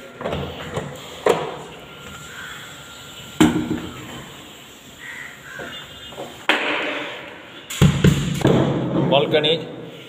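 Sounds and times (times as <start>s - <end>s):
crow cawing: 2.1s - 4.4s, 5.0s - 6.2s.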